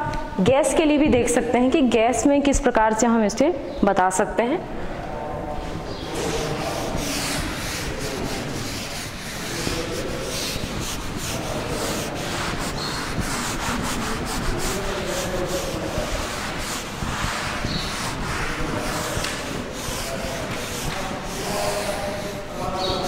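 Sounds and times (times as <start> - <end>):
eraser scrubbing a chalkboard: 5.9 - 23.0.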